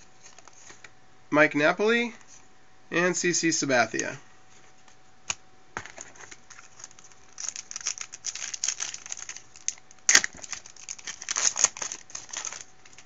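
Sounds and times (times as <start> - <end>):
foil wrapper crinkling and tearing: 6.3 - 13.0
foil wrapper snapping: 6.4 - 13.0.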